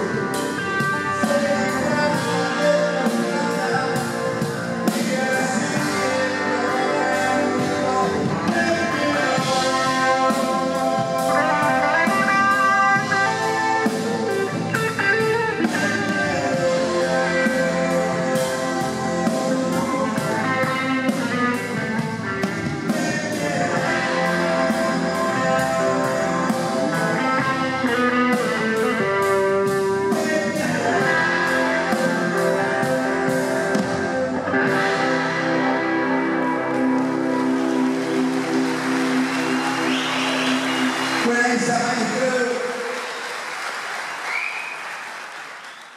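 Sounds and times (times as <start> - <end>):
drum kit beat: 0.0 - 41.2
bass guitar: 0.0 - 42.4
electric guitar: 0.0 - 43.1.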